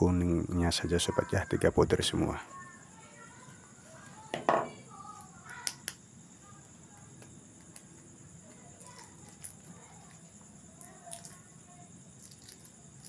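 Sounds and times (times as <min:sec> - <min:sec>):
eggshells cracking and clicking: 0:07.0 - 0:10.2, 0:10.8 - 0:11.5, 0:12.2 - 0:13.0.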